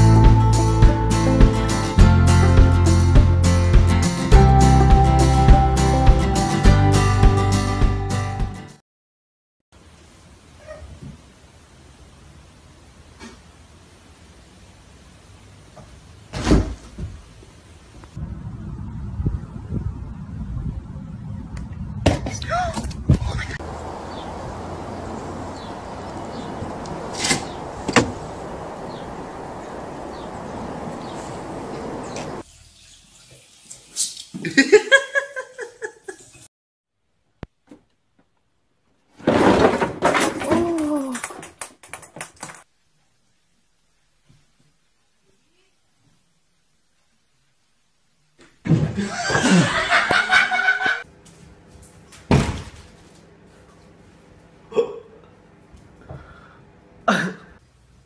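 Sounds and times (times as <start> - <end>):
outdoor hiss: 9.7 - 18.8, 23.6 - 36.5, 42.4 - 54.4, 55.6 - 58.0
people laughing hard: 49.0 - 51.0.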